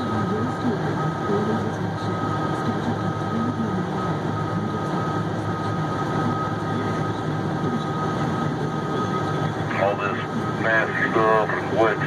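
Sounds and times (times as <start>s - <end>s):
steady high whine: 0.0s - 12.0s
truck diesel engine running: 0.0s - 12.0s.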